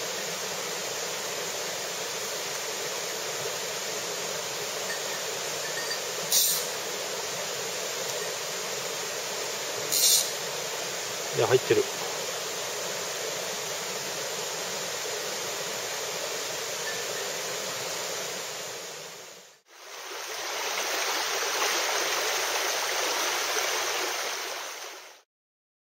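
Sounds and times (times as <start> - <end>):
river water rushing: 0.0 - 25.2.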